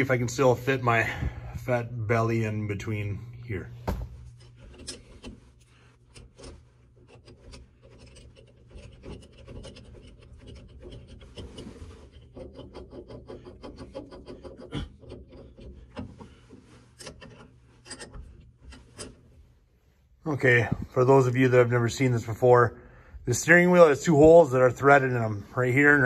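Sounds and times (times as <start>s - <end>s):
metal parts clicking and rubbing: 4.3s - 19.4s.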